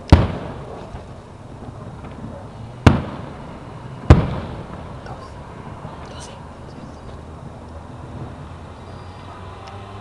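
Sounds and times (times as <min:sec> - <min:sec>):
firework bangs: 0:00.0 - 0:07.4.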